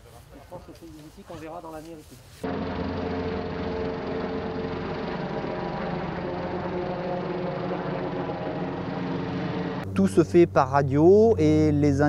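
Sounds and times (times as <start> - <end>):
helicopter hovering: 2.4 - 9.9.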